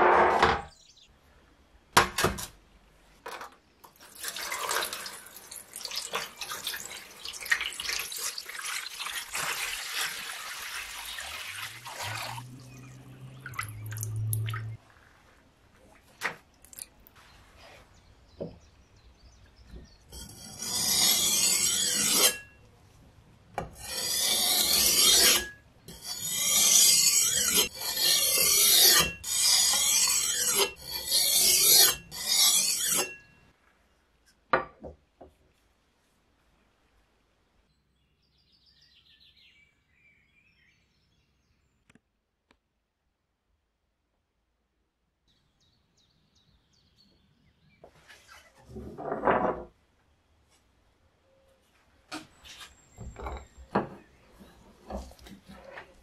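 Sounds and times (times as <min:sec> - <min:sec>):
water running onto whetstone: 0:04.0 - 0:14.8
blade scraping on whetstone: 0:20.1 - 0:22.6, 0:23.8 - 0:33.3.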